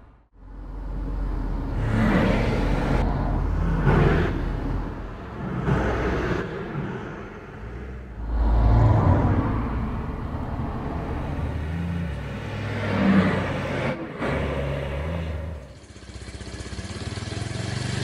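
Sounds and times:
loud low rumble: 0.0s - 14.2s
motor vehicles passing: 0.0s - 18.0s.

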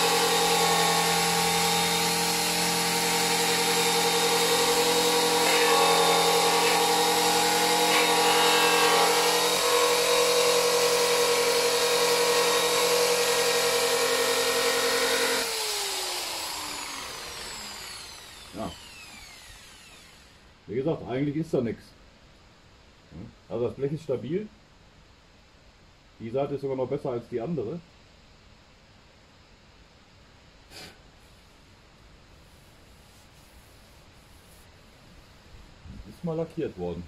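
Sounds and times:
angle grinder whining: 0.0s - 20.4s
grinder spinning down: 0.0s - 20.4s.

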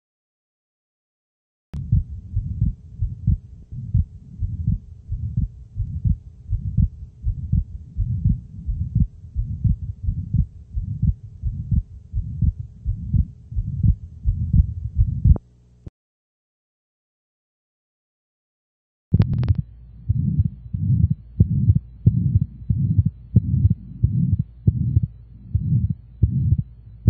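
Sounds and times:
heartbeat through stethoscope: 1.8s - 15.4s, 19.1s - 26.8s
faint steady hum: 1.8s - 15.9s, 19.2s - 27.0s.

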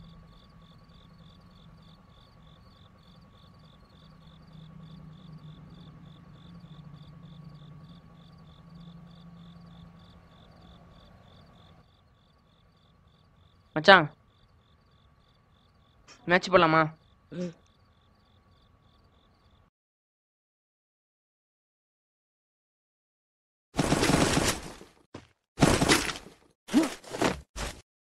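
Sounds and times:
crickets chirping: 0.0s - 19.7s
faint low hum: 0.0s - 19.7s.

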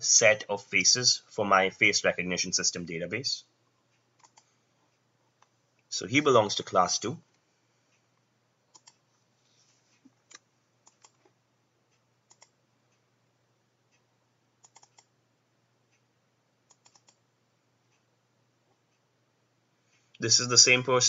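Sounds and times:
computer mouse and keyboard clicks: 4.2s - 4.5s, 8.7s - 9.0s, 9.9s - 11.4s, 12.3s - 12.6s, 14.6s - 15.1s, 16.7s - 17.2s.

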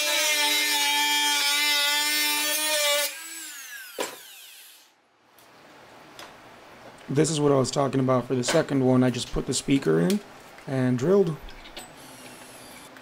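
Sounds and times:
rotary tool whining: 0.0s - 4.9s, 11.9s - 13.0s.

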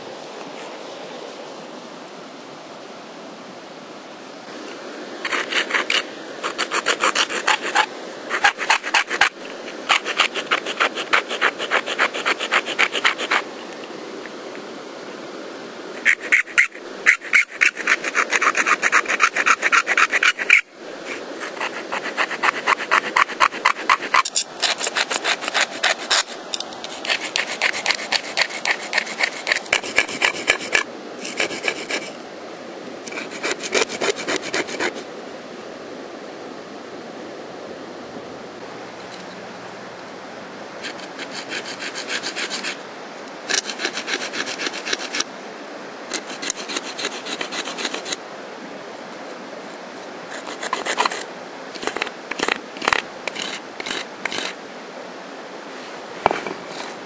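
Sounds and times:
saw sawing through plant stems: 5.2s - 13.5s, 16.0s - 32.1s, 33.1s - 35.0s, 40.8s - 42.8s, 43.5s - 45.3s, 46.1s - 48.2s, 50.3s - 54.6s.

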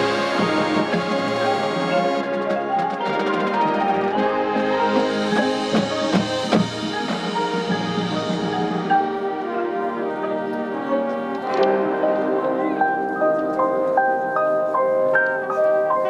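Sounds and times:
drum and percussion hits: 0.0s - 9.4s
brass and woodwinds chords: 0.0s - 16.0s
mallet percussion: 0.0s - 16.0s.

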